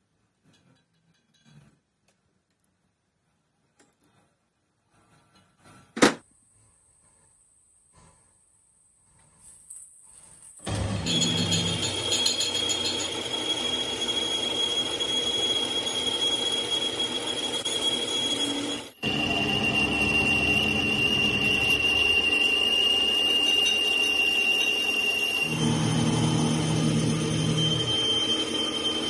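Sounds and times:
lathe tool squealing on shaft: 0:10.7 - 0:29.0
low machine hum: 0:19.0 - 0:29.0.

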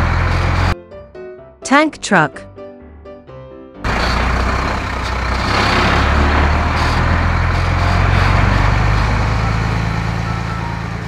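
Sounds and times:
truck engine rumble: 0:00.0 - 0:00.8, 0:03.8 - 0:11.0.

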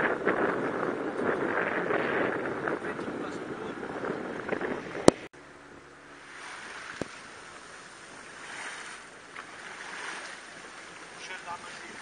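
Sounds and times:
wind on microphone: 0:00.0 - 0:05.3
water washing along boat hull: 0:06.1 - 0:12.0.

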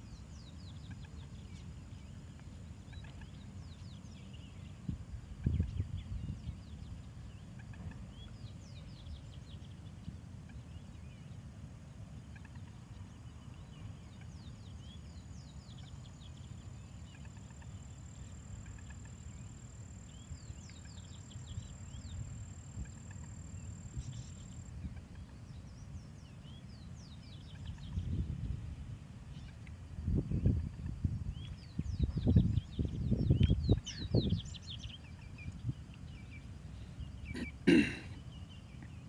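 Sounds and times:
bird chirps and peeps: 0:02.9 - 0:04.8, 0:22.8 - 0:28.4, 0:30.3 - 0:37.6.

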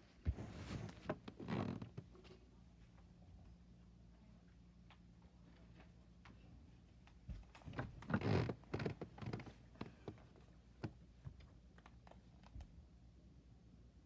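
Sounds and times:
bedding rustling: 0:00.0 - 0:01.8.

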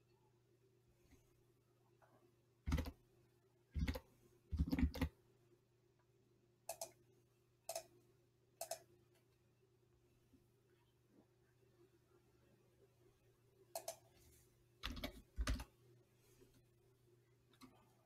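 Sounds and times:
faint electrical hum: 0:00.0 - 0:18.0
computer mouse clicks: 0:02.7 - 0:03.0, 0:03.8 - 0:05.1, 0:06.7 - 0:07.0, 0:07.7 - 0:08.0, 0:08.6 - 0:08.9, 0:13.7 - 0:14.1, 0:14.8 - 0:15.7.

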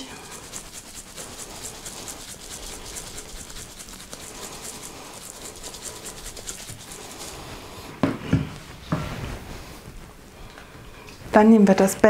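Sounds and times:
spice rub shaken from container: 0:00.0 - 0:07.9.

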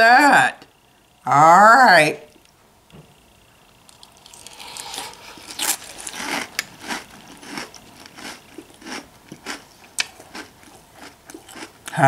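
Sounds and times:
crunchy cereal chewing: 0:03.8 - 0:12.0.

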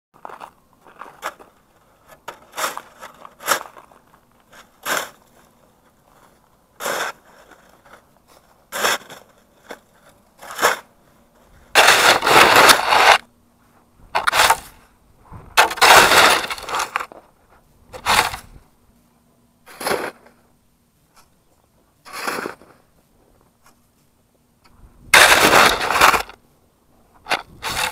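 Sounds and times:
snow shovel scraping snow: 0:01.0 - 0:13.2, 0:14.2 - 0:14.9, 0:15.6 - 0:17.2, 0:17.9 - 0:18.6, 0:19.7 - 0:20.4, 0:22.0 - 0:22.9, 0:25.1 - 0:26.4, 0:27.3 - 0:27.9.

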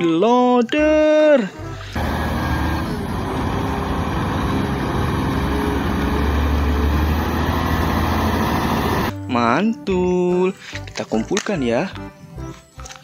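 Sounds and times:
diesel engine droning: 0:01.9 - 0:09.1.

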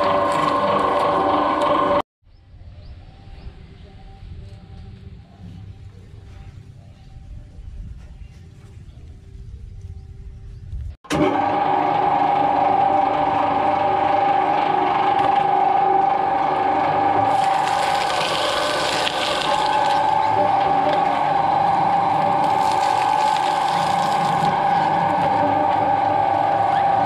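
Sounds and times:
coconut shells grinding in blades: 0:00.0 - 0:02.0, 0:11.1 - 0:27.0
shredder motor whine: 0:00.0 - 0:02.0, 0:11.1 - 0:27.0.

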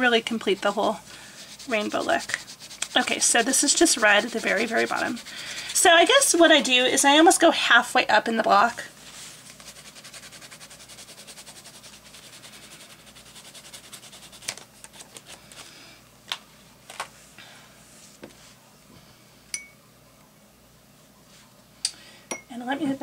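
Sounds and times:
crayon scribbling on paper: 0:00.0 - 0:06.6, 0:09.6 - 0:14.6.

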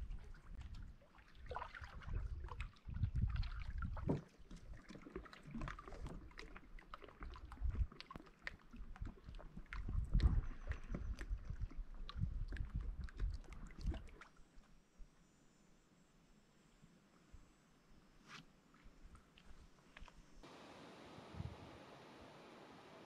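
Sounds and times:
paddle splashes and drips: 0:00.0 - 0:14.8
paddle knocking against hull: 0:03.8 - 0:05.0.

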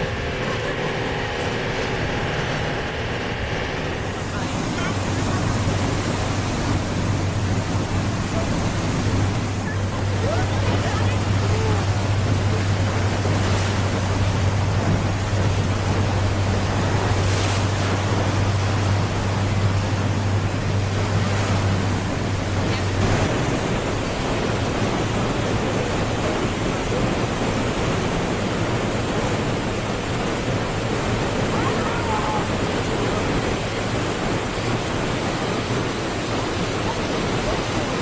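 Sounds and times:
waterfall rushing: 0:00.0 - 0:38.0.

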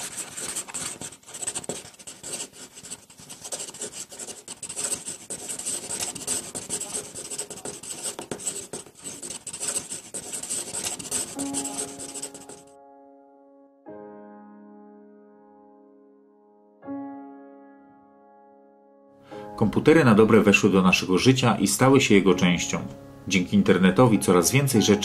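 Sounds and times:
pencil scratching on paper: 0:00.0 - 0:12.7.

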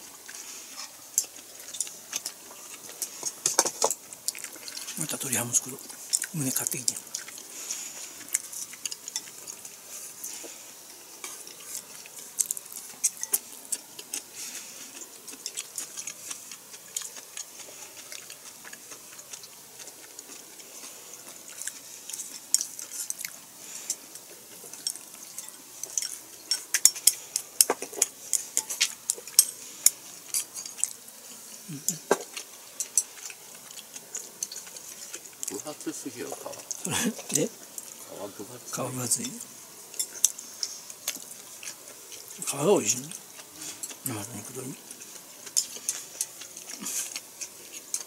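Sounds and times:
chopsticks clicking on plates: 0:12.0 - 0:14.3, 0:24.6 - 0:31.0.

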